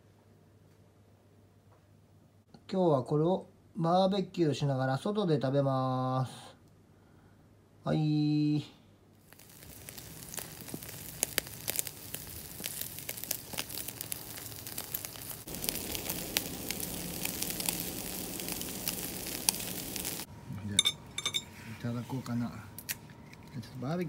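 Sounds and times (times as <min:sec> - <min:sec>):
charcoal crackles and pops: 0:09.2 - 0:21.4
meat sizzling on grill: 0:09.2 - 0:21.4.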